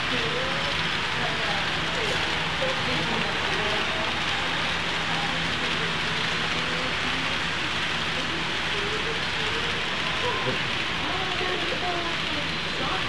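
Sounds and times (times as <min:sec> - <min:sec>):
faint voices: 0:00.0 - 0:13.0
model train running: 0:00.0 - 0:13.0.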